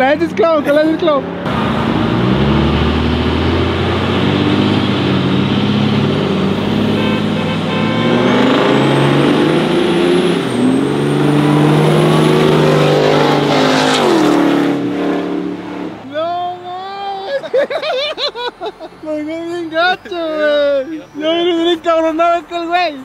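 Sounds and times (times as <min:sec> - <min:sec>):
pickup truck engines accelerating: 0:00.0 - 0:23.0
high turbo whistle: 0:06.6 - 0:16.0.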